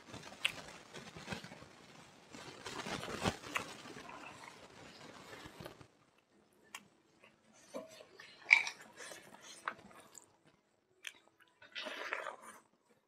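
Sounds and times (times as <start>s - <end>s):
soft wet clicks: 11.0s - 11.6s.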